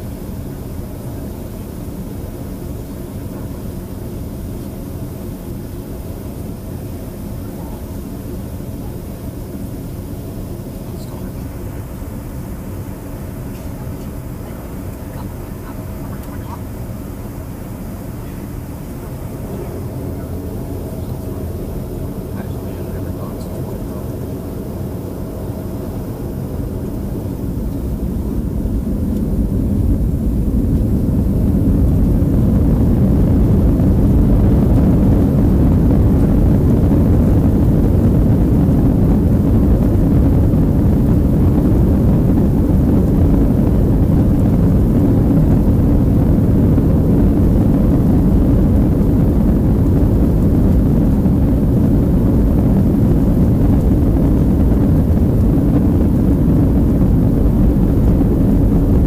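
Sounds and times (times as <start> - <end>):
jet engines spooling up: 1.4 - 59.0.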